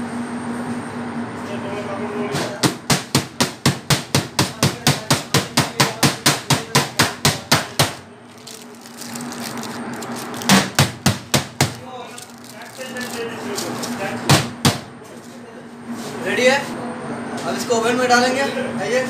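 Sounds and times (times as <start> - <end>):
baking tray knocking on metal counter: 2.6 - 8.1, 10.5 - 11.9, 14.3 - 14.9.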